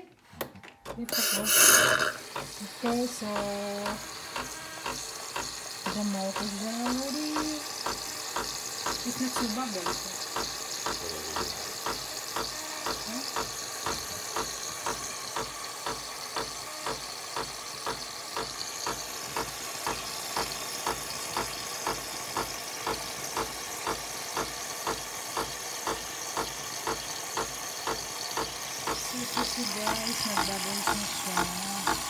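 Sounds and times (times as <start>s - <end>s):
espresso machine pump pulsing: 0.9s - 32.0s
espresso machine hiss: 1.1s - 32.0s.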